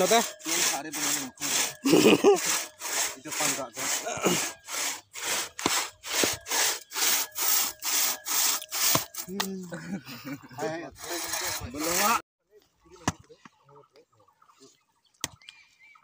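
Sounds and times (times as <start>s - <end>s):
crosscut saw rasping through log: 0.0s - 9.4s, 10.6s - 12.2s.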